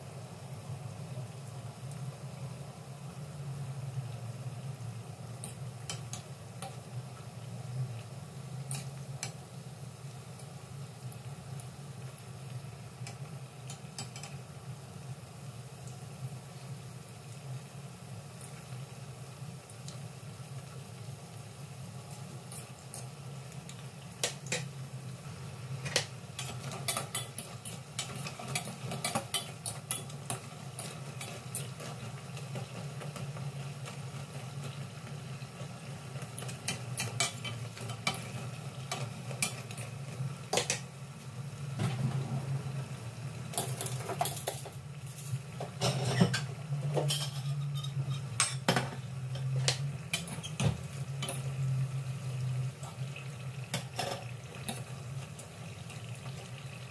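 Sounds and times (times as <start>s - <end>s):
food deep-frying in oil: 0.0s - 56.9s
low steady hum: 0.0s - 56.9s.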